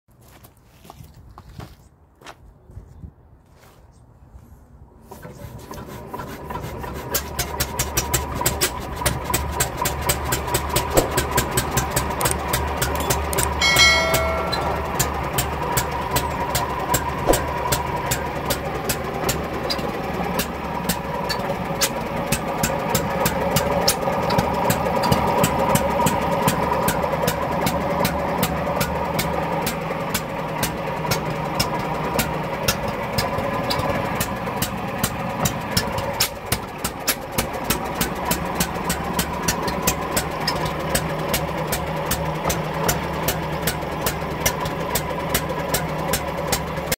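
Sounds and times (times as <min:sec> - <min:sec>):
stationary engine running: 0:08.0 - 0:33.2.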